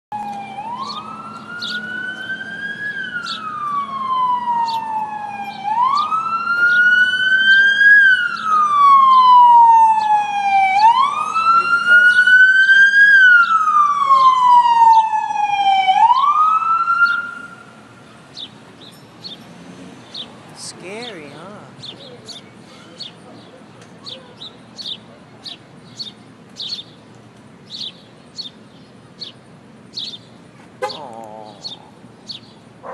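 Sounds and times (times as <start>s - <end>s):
emergency siren wailing: 0.1s - 18.0s.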